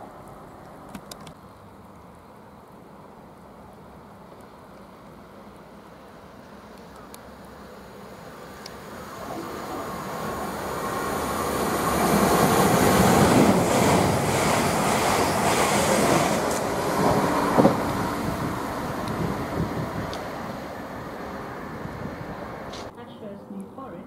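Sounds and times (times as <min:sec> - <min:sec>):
electric train passing: 0:03.8 - 0:24.0
train wheels clacking: 0:11.3 - 0:19.3.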